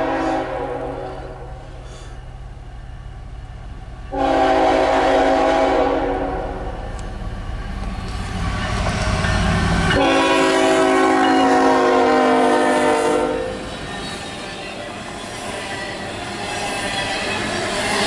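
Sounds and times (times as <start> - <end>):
locomotive air horn: 0.0 - 2.1, 4.1 - 6.8, 9.9 - 13.7
train rumble: 0.0 - 18.0.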